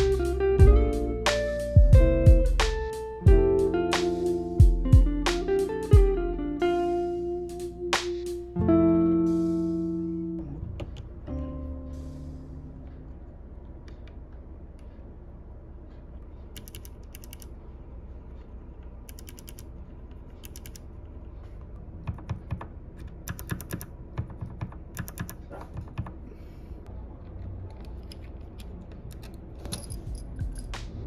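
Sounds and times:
keyboard switches clicking: 16.6s - 17.5s, 20.4s - 20.8s, 22.0s - 26.1s.

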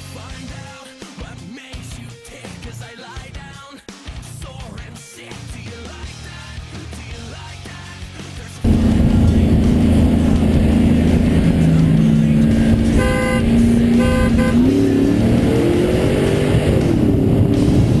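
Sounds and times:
horn honking: 8.7s - 10.5s, 11.6s - 15.0s
pickup truck engines revving: 8.7s - 18.0s.

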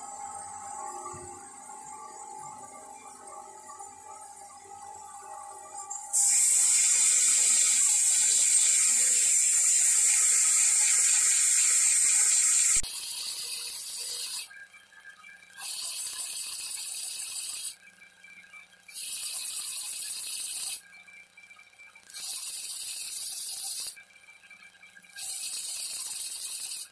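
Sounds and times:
wire wheel grinder hiss: 6.0s - 14.5s, 15.5s - 17.8s, 18.9s - 20.9s, 22.0s - 24.0s, 25.0s - 26.9s.

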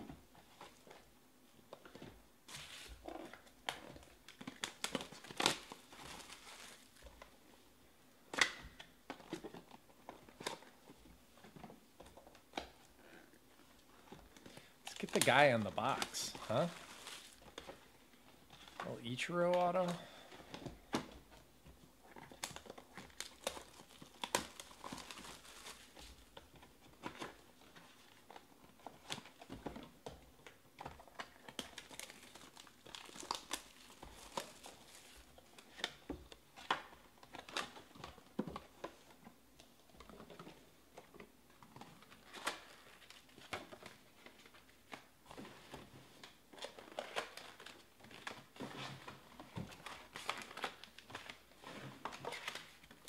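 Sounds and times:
plastic wrap crinkling and tearing: 1.8s - 7.4s, 12.1s - 21.4s, 22.0s - 53.0s.

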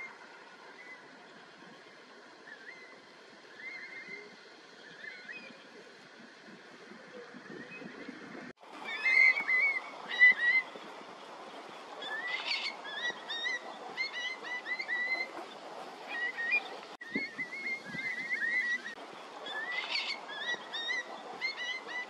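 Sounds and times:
steady background hiss: 0.0s - 8.0s
curlews whistling calls: 2.5s - 5.7s, 8.8s - 10.8s, 12.0s - 22.0s.

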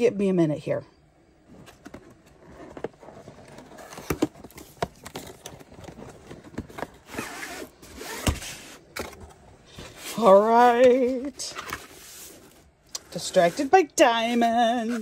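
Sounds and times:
handling rustles and clicks: 1.5s - 13.6s.

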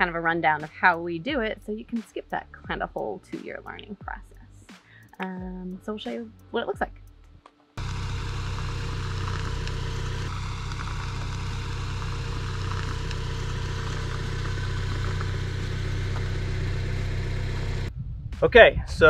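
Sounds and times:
faint steady whine: 7.8s - 17.9s
vehicle engine idling: 7.8s - 17.9s.

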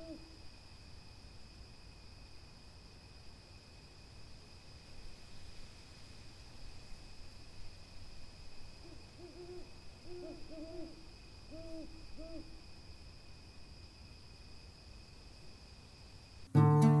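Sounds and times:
owl hooting: 0.0s - 0.3s, 8.8s - 12.6s
acoustic guitar music: 16.5s - 17.0s.

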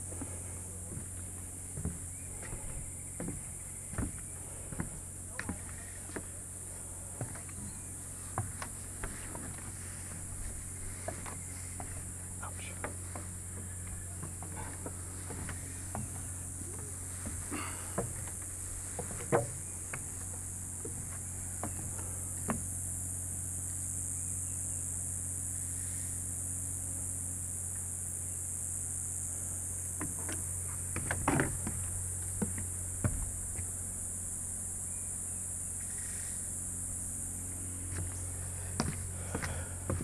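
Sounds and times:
low hum: 0.0s - 24.7s
insects chirping chorus: 0.0s - 40.0s.

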